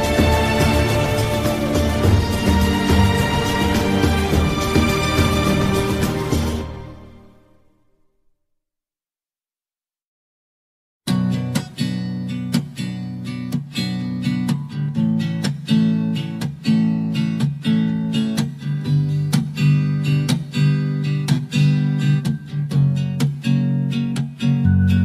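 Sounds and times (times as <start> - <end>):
strummed acoustic guitar: 0.0 - 7.1, 11.1 - 25.0.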